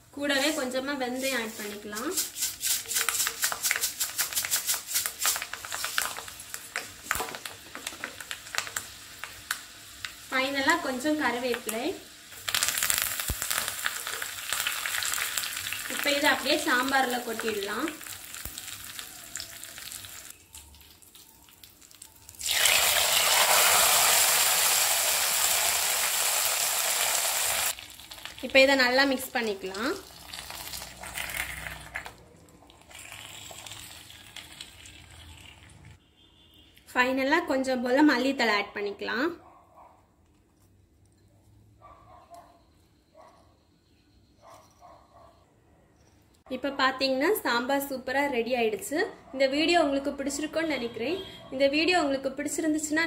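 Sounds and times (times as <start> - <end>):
hot oil crackling and popping: 1.7 - 36.0.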